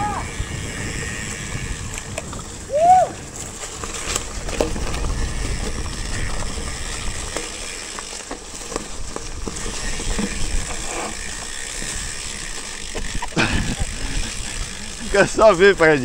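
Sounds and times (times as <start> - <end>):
bike freehub ratchet clicking: 0.0 - 2.8, 3.7 - 16.0
bike knocking over trail: 0.0 - 16.0
tyres rumbling on dirt: 0.0 - 16.0.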